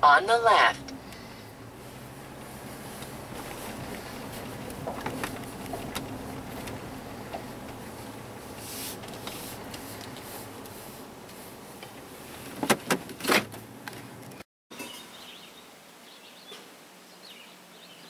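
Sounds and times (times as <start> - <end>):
truck cabin rumble: 0.0 - 14.4.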